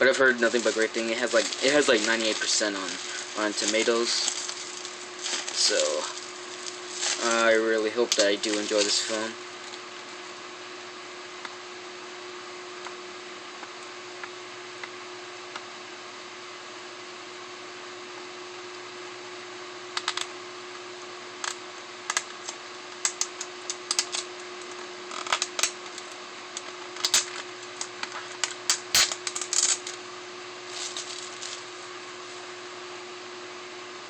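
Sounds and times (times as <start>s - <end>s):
steady low hum: 0.0s - 34.0s
plastic clicks and crackles: 20.0s - 20.3s, 21.4s - 30.0s.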